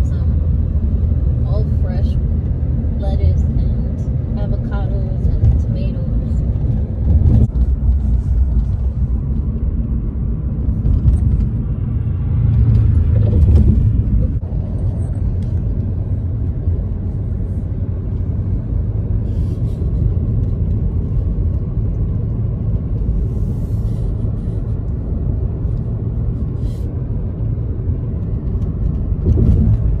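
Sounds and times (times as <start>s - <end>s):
car road rumble from inside: 0.0s - 30.0s.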